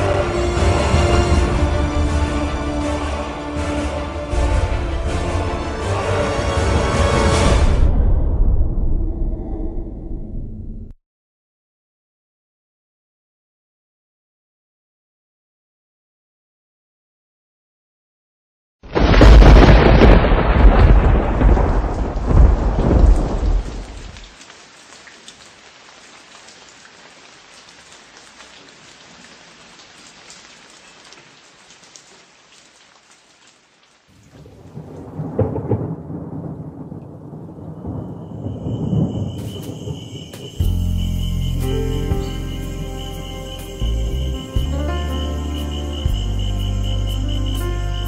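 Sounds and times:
steady rain: 0.0 - 7.9, 18.9 - 48.0
music: 0.0 - 8.1, 40.6 - 48.0
thunder rumbling: 3.9 - 11.0, 19.0 - 24.3, 34.3 - 41.0.

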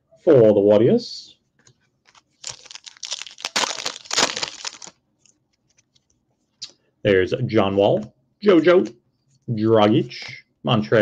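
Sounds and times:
wrapper tearing and crinkling: 2.1 - 5.0.

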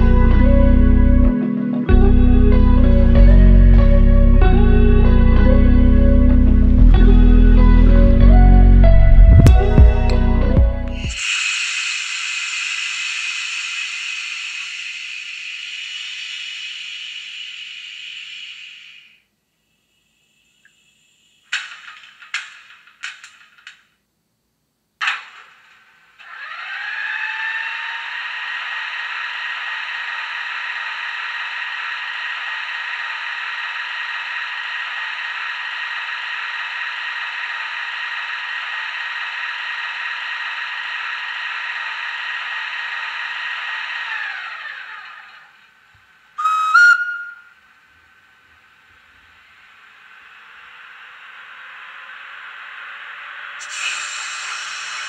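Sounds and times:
electric machine whine: 0.0 - 19.3, 25.3 - 55.0
short whistle: 11.1 - 19.3, 46.4 - 47.7
faint hiss: 11.2 - 22.9, 45.7 - 55.0.

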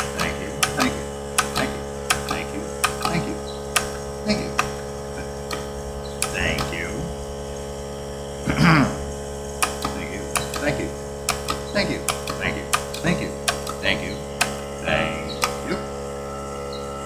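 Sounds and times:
tally counter clicks: 0.0 - 4.8, 5.4 - 6.9, 9.6 - 14.6, 15.4 - 15.8
steady hum: 0.0 - 17.0.

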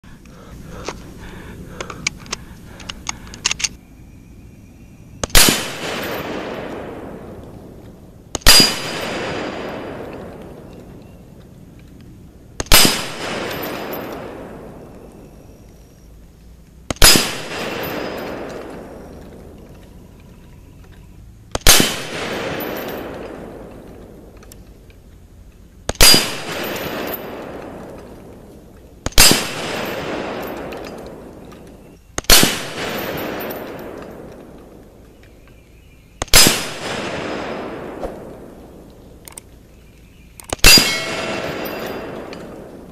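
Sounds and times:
rifle shots with echo: 5.2 - 10.8, 12.6 - 15.0, 16.9 - 19.6, 21.5 - 24.3, 25.9 - 35.0, 36.2 - 39.4, 40.4 - 42.9.

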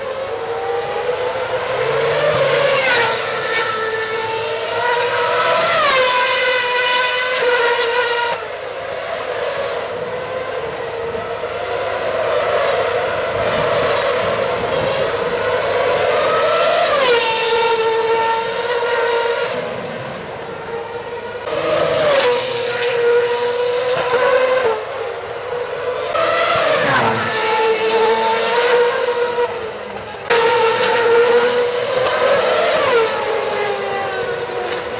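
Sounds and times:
racing car engines whining: 0.0 - 34.9.

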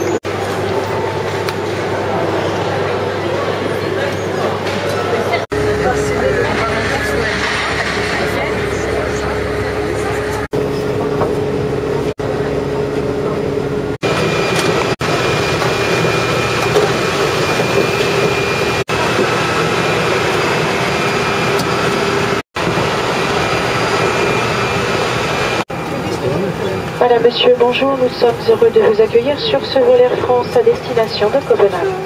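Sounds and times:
jet aircraft roar: 0.0 - 32.0
high whine: 5.5 - 27.7.

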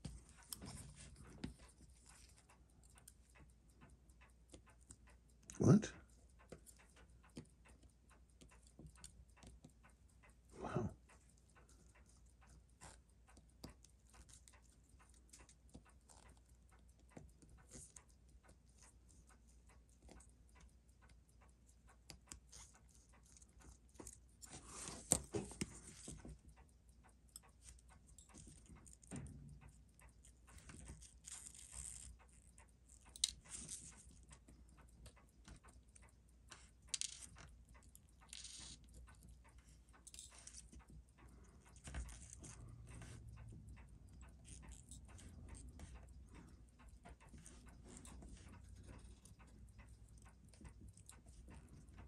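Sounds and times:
small tools clicking and tapping: 22.0 - 26.4, 27.3 - 52.0.

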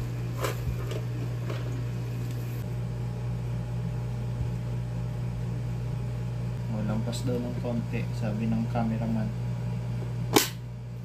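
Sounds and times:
label roll rustles and clicks: 0.0 - 2.6
steady low hum: 0.0 - 11.0.

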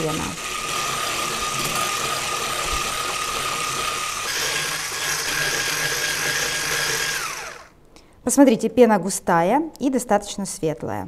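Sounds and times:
electric hand mixer whining: 0.0 - 7.8.

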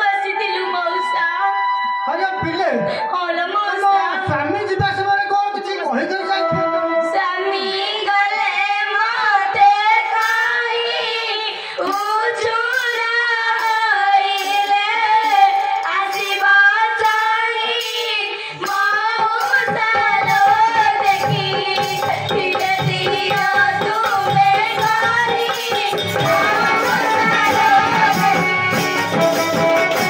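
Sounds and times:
young female voices singing: 7.2 - 29.2.

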